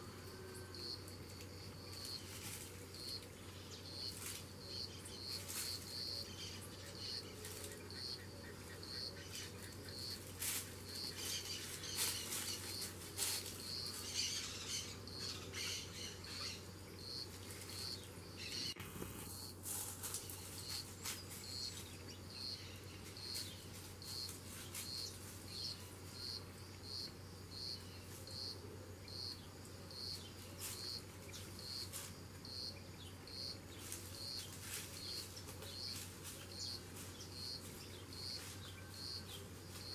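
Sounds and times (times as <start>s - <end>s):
insect chirping: 0.0s - 39.9s
leaf litter crackling and rustling: 1.2s - 8.1s, 9.7s - 16.1s, 17.2s - 22.0s, 22.6s - 26.2s, 30.4s - 32.5s, 33.6s - 39.9s.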